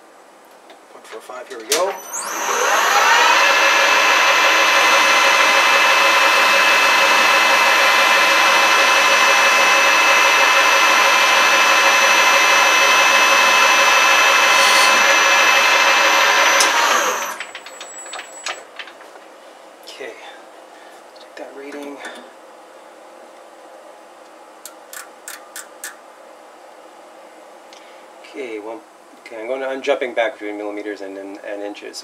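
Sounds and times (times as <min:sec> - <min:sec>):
lathe whine: 0:01.9 - 0:18.6.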